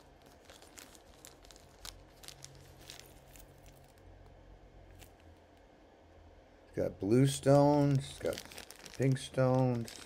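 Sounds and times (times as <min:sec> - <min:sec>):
plastic bag crinkling: 0:00.0 - 0:04.1, 0:07.2 - 0:10.0
low steady hum: 0:00.0 - 0:10.0.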